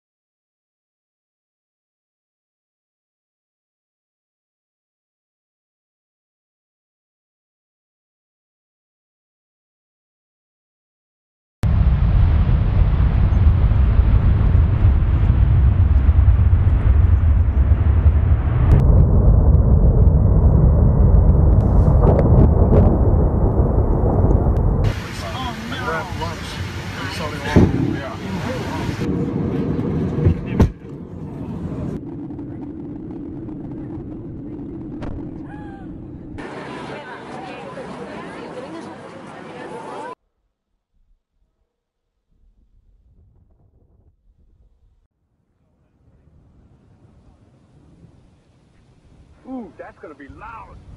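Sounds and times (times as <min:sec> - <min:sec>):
jet engines rumbling: 0:11.7 - 0:40.2, 0:46.1 - 0:50.9.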